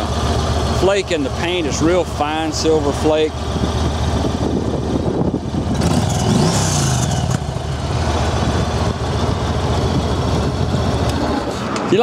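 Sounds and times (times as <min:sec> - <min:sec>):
motorcycle engine idling: 0:00.0 - 0:11.6.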